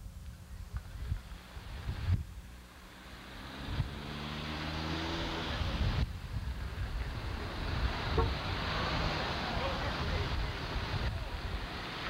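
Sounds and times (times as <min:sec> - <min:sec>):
wind buffeting microphone: 0:00.0 - 0:02.6, 0:05.6 - 0:12.0
car engines humming: 0:00.0 - 0:12.0
tyre hiss on wet road: 0:01.1 - 0:12.0.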